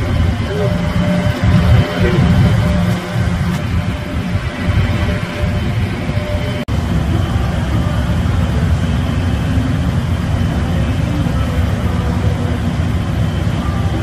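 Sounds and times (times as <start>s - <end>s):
furnaces and blowers roaring: 0.0s - 14.0s
faint high tone: 0.1s - 8.2s.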